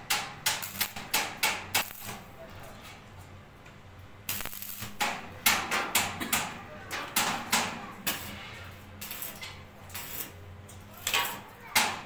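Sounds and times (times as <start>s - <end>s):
welding arc crackling: 0.1s - 2.4s, 4.2s - 6.1s, 8.0s - 10.4s.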